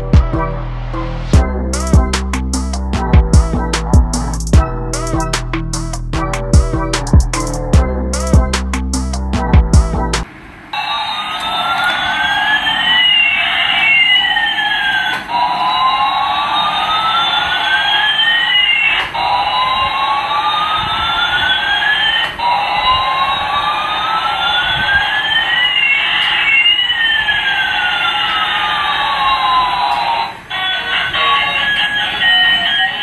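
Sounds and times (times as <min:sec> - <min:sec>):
steady hum: 0:00.0 - 0:33.0
toy siren-like electronic tones: 0:10.7 - 0:33.0.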